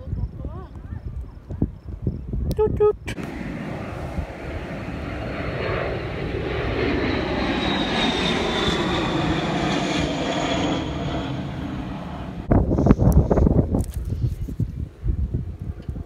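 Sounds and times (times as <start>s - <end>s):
high whine falling in pitch: 3.1s - 12.6s
airplane engine drone: 3.1s - 13.0s.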